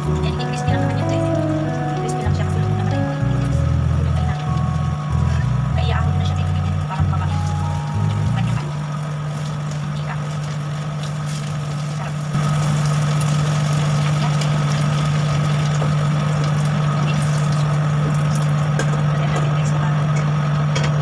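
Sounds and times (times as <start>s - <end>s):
low mechanical hum: 0.0s - 21.0s
pancakes frying in oil: 8.8s - 19.3s.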